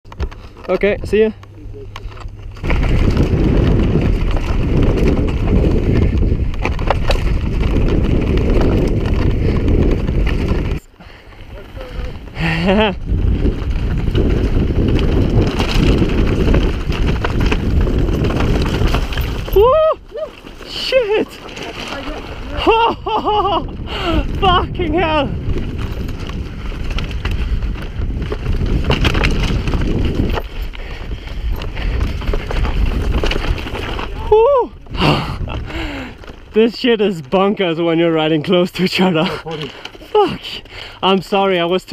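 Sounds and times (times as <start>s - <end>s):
bike clicks and knocks: 0.1s - 23.6s, 25.0s - 34.2s
tyres rolling over gravel: 0.1s - 41.9s
wind buffeting microphone: 2.2s - 41.9s.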